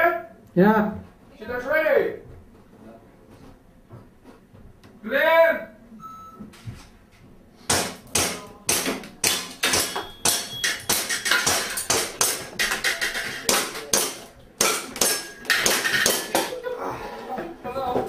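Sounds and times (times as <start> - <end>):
airsoft pistol shots: 7.7 - 12.6
pellets striking steel targets: 7.7 - 16.6.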